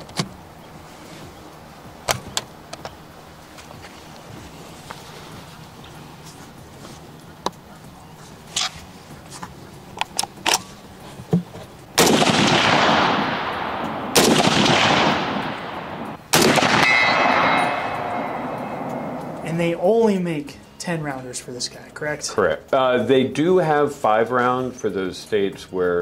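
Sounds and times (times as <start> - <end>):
rifle handling clicks: 9.9 - 10.8
rifle shots echoing: 12.0 - 19.5
short ringing note: 16.8 - 19.5.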